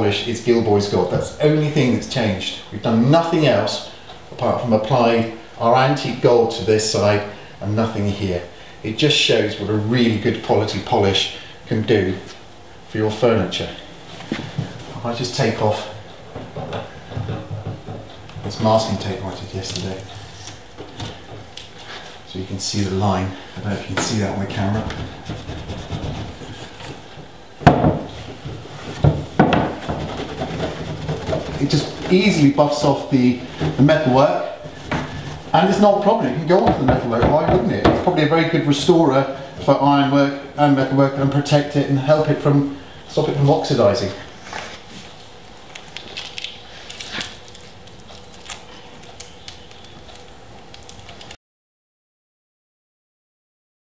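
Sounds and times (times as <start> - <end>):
cloth buffing wood: 23.0 - 27.1, 28.0 - 39.8
handling clicks and rustles: 23.6 - 38.9
sharp knock on wood: 29.0 - 30.1.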